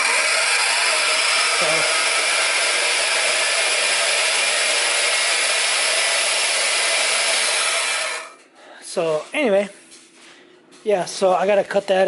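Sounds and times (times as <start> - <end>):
bandsaw running: 0.0 - 8.4.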